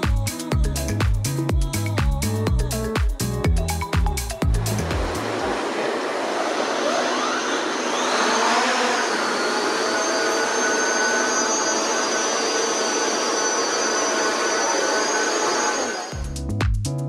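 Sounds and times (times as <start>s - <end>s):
drone propellers whining: 4.3s - 16.2s.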